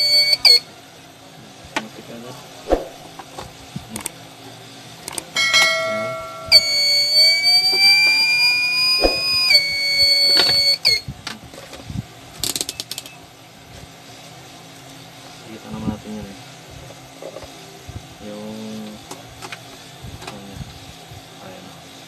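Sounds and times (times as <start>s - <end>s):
inverter electronic whine: 0.0s - 0.7s, 5.1s - 11.2s.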